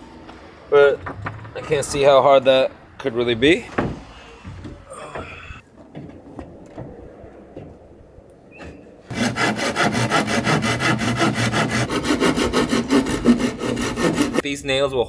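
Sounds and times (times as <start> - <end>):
hand saw cutting wood: 9.1 - 14.4.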